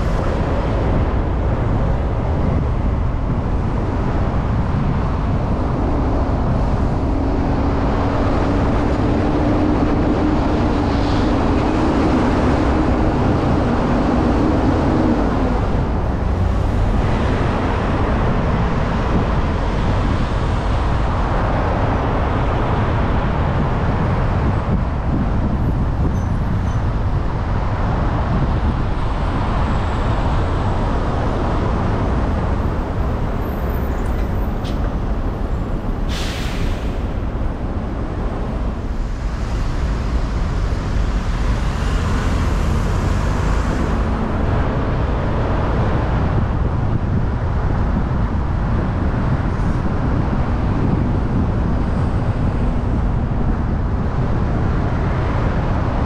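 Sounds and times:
road traffic rumble: 0:00.0 - 0:56.0
air brakes hissing: 0:35.9 - 0:37.3.

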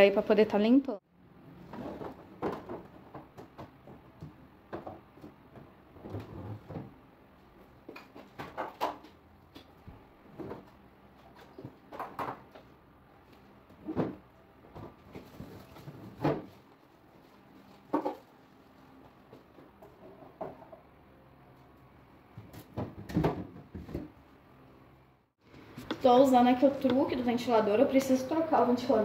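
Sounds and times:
plastic containers clattering on shelves: 0:01.7 - 0:07.0.

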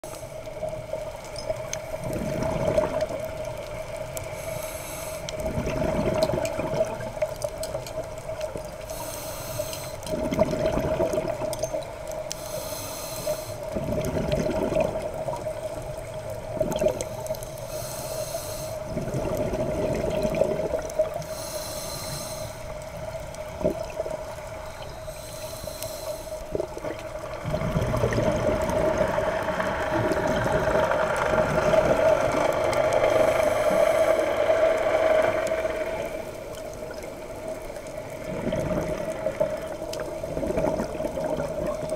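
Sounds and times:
hissing regulator inhale: 0:00.0 - 0:00.9, 0:04.2 - 0:05.5, 0:08.8 - 0:10.2, 0:12.2 - 0:13.8, 0:17.0 - 0:18.9, 0:21.1 - 0:23.0, 0:24.5 - 0:26.7, 0:32.7 - 0:36.5
gurgling exhaled bubbles: 0:00.5 - 0:04.2, 0:05.2 - 0:09.0, 0:10.0 - 0:12.4, 0:13.6 - 0:17.4, 0:18.8 - 0:21.5, 0:22.7 - 0:24.9, 0:26.4 - 0:41.9.

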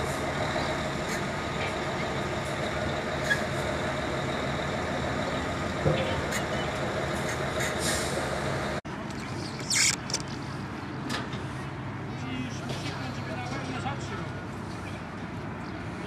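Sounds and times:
city traffic hum: 0:00.0 - 0:16.0.

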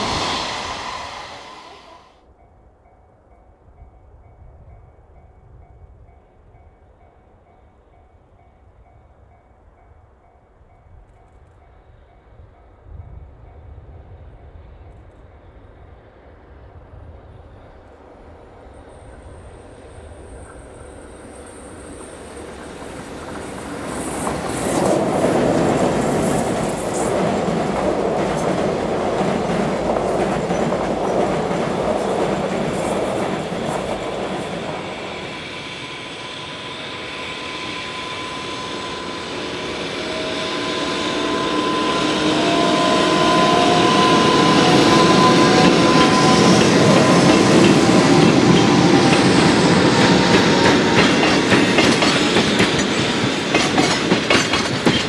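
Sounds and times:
train wheels clickety-clack: 0:20.2 - 0:35.6, 0:42.6 - 0:55.0.

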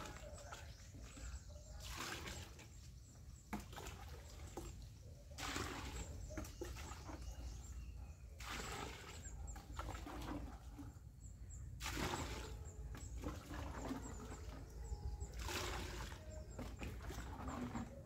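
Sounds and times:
water splashing onto plants: 0:00.0 - 0:02.8, 0:05.4 - 0:07.0, 0:08.4 - 0:10.6, 0:11.8 - 0:14.6, 0:15.3 - 0:17.7
faint bird chirps: 0:00.0 - 0:08.4, 0:09.2 - 0:11.8.

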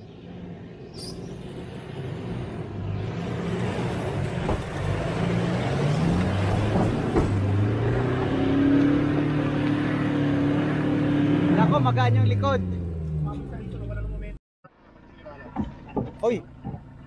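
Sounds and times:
off-road vehicle engine revving: 0:00.0 - 0:14.4
sharp knocks: 0:15.6 - 0:17.0.

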